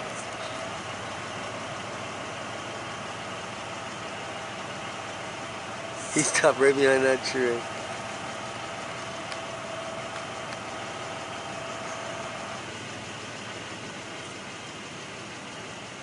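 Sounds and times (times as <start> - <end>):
vehicle engine running: 0.0 - 16.0.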